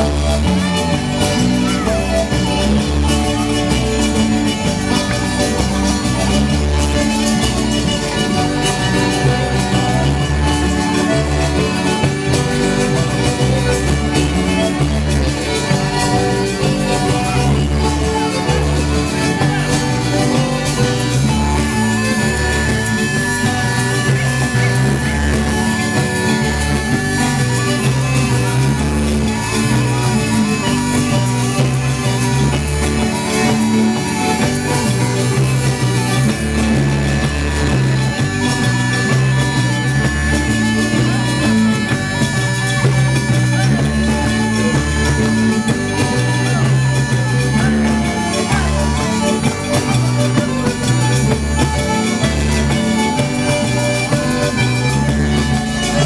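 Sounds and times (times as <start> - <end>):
bagpipe with drone: 0.0 - 56.0
bass guitar: 0.0 - 56.0
button accordion: 0.0 - 56.0
drums steady beat: 0.0 - 56.0.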